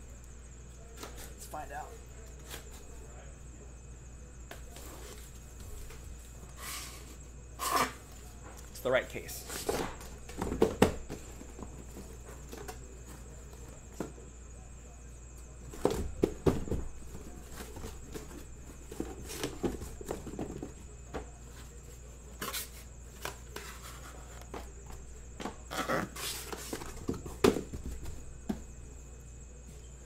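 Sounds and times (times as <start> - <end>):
thumps on cardboard box: 9.6 - 12.0, 15.7 - 21.3, 26.3 - 28.7.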